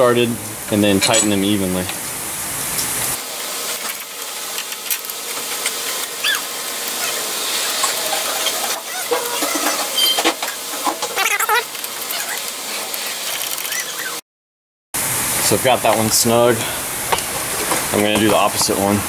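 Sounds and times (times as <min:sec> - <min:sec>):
steady hiss: 0:00.0 - 0:10.8, 0:15.0 - 0:19.0
high chirping squeaks: 0:06.2 - 0:07.3, 0:08.3 - 0:10.3, 0:13.6 - 0:14.2.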